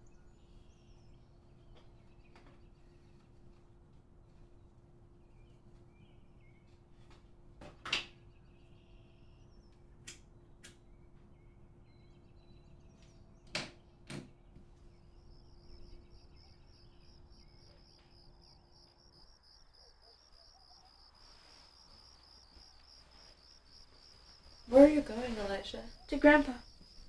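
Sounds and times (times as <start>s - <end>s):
faint hum: 14.0s - 27.0s
crickets chirping: 15.0s - 27.0s.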